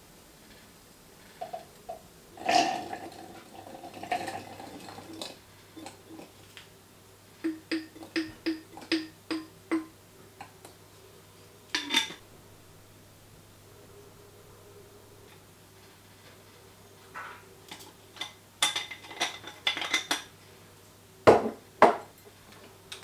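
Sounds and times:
kitchenware clinking and tapping: 1.4s - 6.3s, 7.4s - 10.8s, 11.7s - 12.2s, 17.1s - 20.3s, 21.3s - 22.2s.

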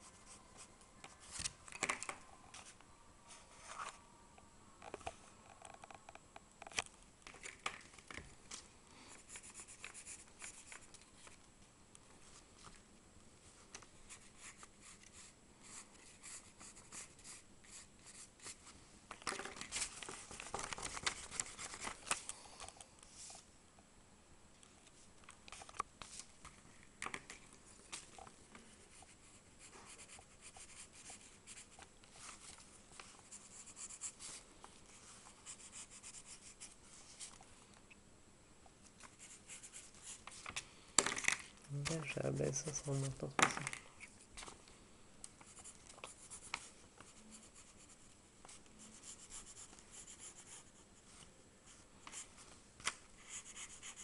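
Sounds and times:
pencil scratching on paper: 9.2s - 10.8s, 14.1s - 18.6s, 28.9s - 31.8s, 33.2s - 34.4s, 35.3s - 36.8s, 39.1s - 40.3s, 45.4s - 50.8s, 53.2s - 54.0s.

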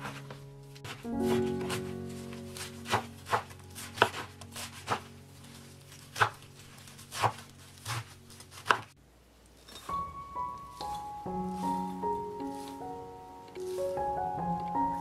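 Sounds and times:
knife chopping on wooden board: 2.8s - 5.1s, 6.2s - 6.4s, 7.1s - 8.9s.

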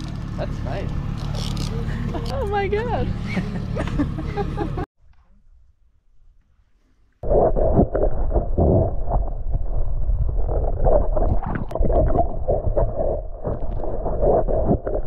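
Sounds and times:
underwater gurgling and knocking: 7.2s - 15.0s.

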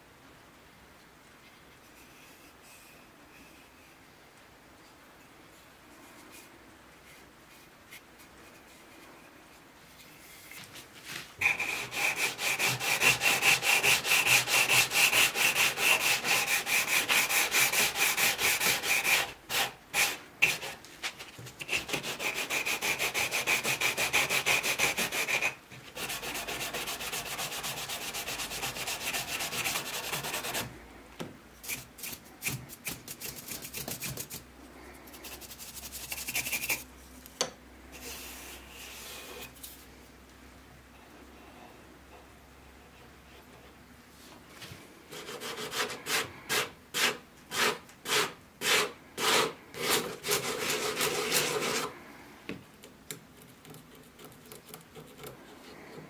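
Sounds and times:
sandpaper rubbing on wood: 11.4s - 30.7s, 35.2s - 36.8s, 45.2s - 51.9s.

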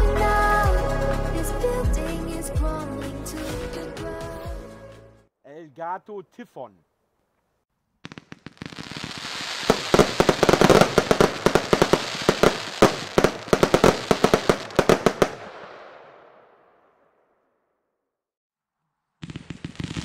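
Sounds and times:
firework hiss and crackle: 8.0s - 15.4s, 19.2s - 20.0s
firework shells bursting: 8.0s - 16.0s, 19.2s - 20.0s
firework launch cracks: 8.0s - 16.6s, 19.2s - 20.0s.

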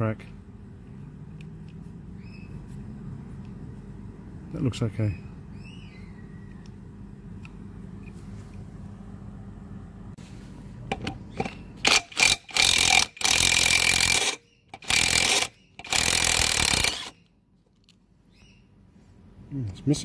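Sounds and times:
impact driver hammering: 10.9s - 17.2s.

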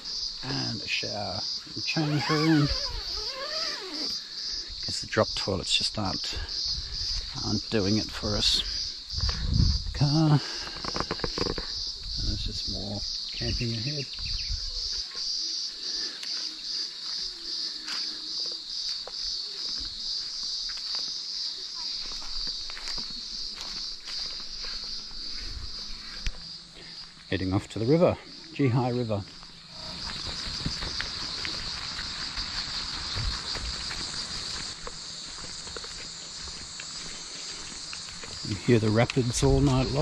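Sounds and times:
insect chorus droning: 0.0s - 40.0s
footsteps on dirt: 6.1s - 9.9s, 13.1s - 27.6s, 28.3s - 40.0s.

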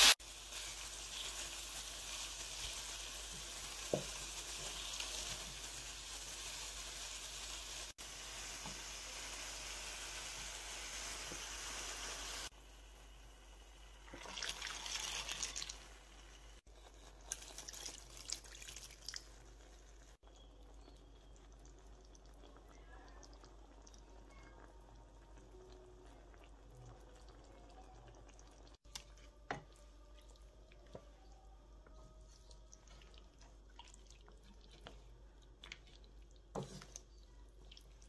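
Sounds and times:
water poured into a pan: 14.0s - 15.9s, 17.3s - 20.2s
water drips: 17.3s - 19.3s, 20.2s - 38.0s.

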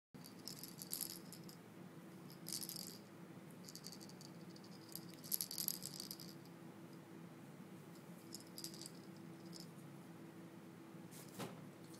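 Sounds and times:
toy ball rattling: 0.2s - 1.6s, 2.2s - 6.5s, 8.2s - 9.7s.

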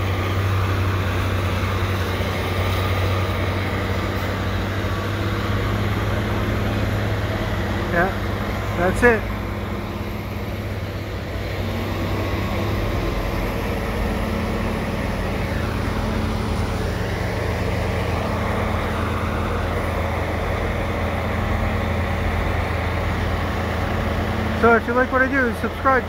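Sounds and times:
diesel engines droning: 0.0s - 26.0s.

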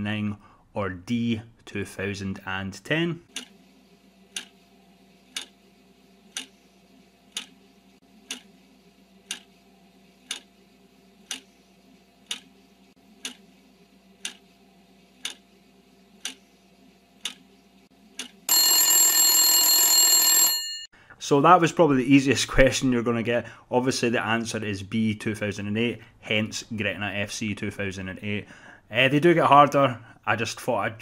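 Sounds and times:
loud alarm: 18.5s - 20.8s.

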